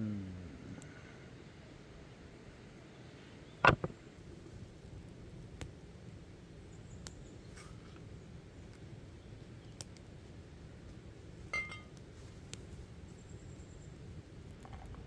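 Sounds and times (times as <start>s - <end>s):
wood fire crackling: 3.5s - 15.0s
ringing metal clink: 11.6s - 11.9s.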